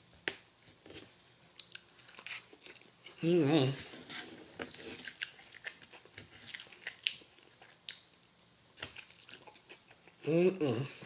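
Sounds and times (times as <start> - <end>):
chewing: 1.6 - 3.2, 4.6 - 8.1, 8.8 - 10.2.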